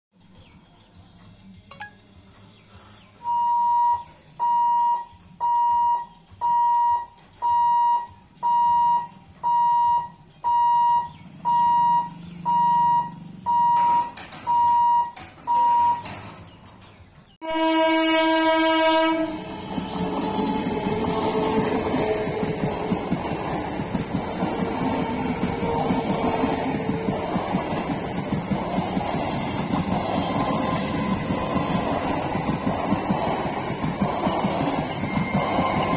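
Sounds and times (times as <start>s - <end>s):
level crossing buzzer beeping: 3.3s - 16.1s
train horn: 17.4s - 22.6s.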